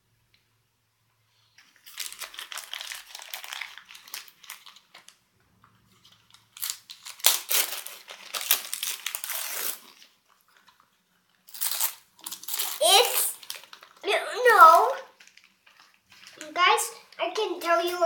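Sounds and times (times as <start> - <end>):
wrapping paper crinkling and tearing: 1.5 - 18.0.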